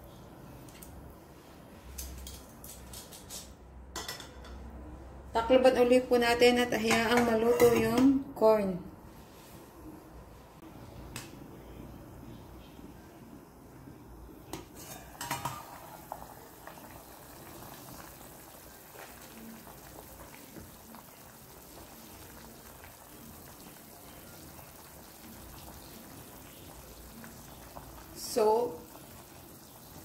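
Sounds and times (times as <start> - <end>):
metal pot lid clinking: 6.9 - 8.0, 14.6 - 16.0
stew simmering: 10.6 - 30.0.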